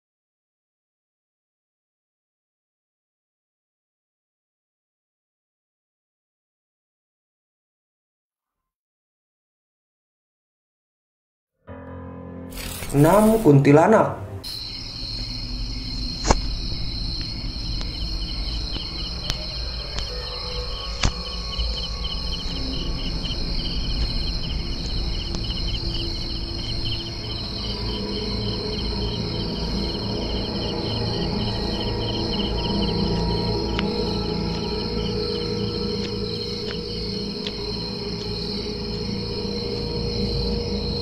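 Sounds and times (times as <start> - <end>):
insects chirping: 12.5 - 41.0
low rumble: 14.4 - 38.6.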